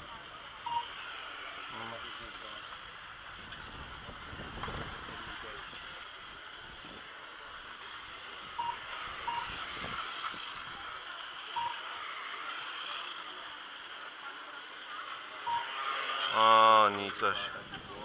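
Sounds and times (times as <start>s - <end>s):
short beeps: 0.6s - 1.0s, 8.6s - 9.6s, 11.5s - 11.9s, 15.4s - 15.9s.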